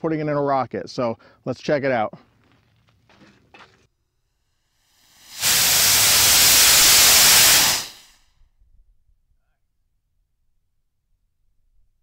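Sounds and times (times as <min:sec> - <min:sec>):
rocket motor hissing: 0:04.9 - 0:08.2.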